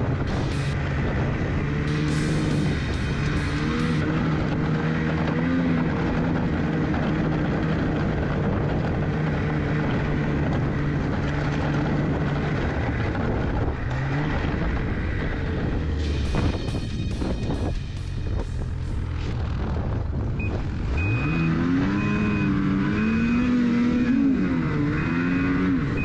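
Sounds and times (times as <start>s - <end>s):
music: 0.0s - 0.8s, 1.7s - 4.4s, 15.8s - 19.8s
snowmobile engine running: 0.0s - 26.0s.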